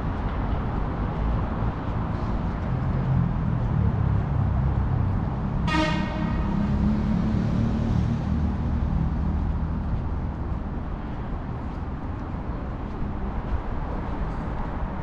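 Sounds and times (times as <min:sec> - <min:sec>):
passing vehicles rumbling: 0:00.0 - 0:15.0
car horn toot: 0:05.6 - 0:06.6.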